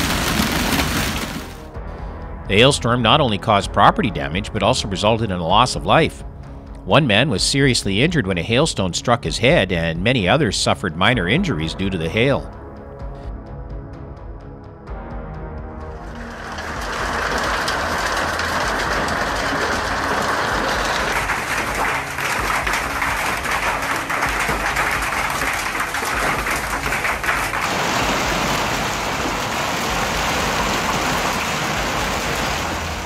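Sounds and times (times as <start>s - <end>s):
hailstones clattering: 0.0s - 1.7s, 16.0s - 33.0s.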